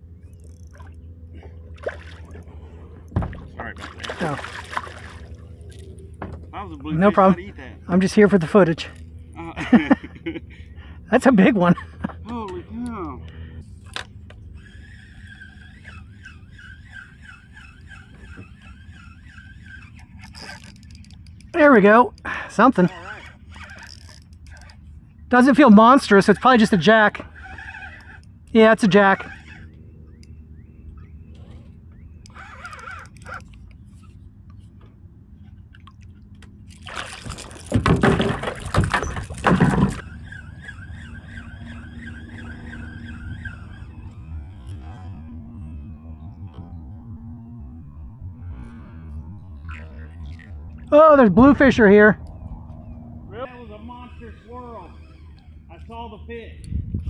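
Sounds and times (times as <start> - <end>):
fishing reel gear whine: 0.0 - 56.8
fish splashing at water surface: 3.8 - 5.4, 36.8 - 40.0
steady warbling tone: 40.0 - 56.4.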